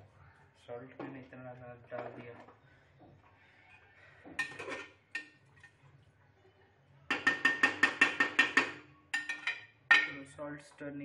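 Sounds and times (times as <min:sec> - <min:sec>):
metal ladle tapping a pot: 0:07.1 - 0:10.2.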